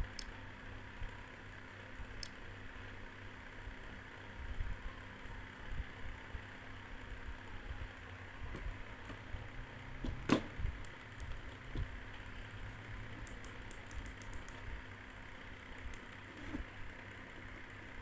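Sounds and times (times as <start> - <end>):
steady low hum: 0.0 - 18.0
faint clicks: 13.2 - 14.6.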